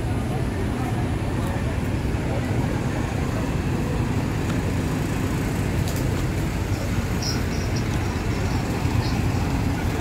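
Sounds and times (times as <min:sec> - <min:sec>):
bus engines rumbling: 0:00.0 - 0:10.0.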